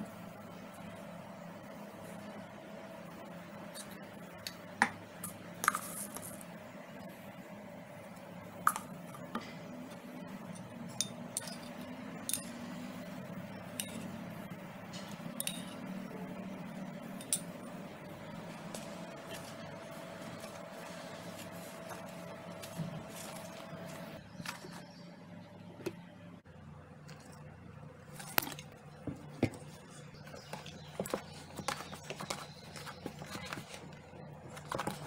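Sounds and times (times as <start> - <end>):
steady low hum: 0.0 - 35.0
spoons clinking against bowls: 10.5 - 12.8, 13.6 - 14.2, 15.0 - 16.0, 17.1 - 17.6.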